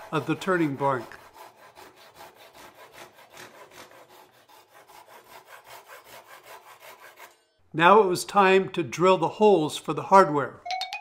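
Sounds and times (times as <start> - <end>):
hand saw cutting wood: 0.0 - 7.5.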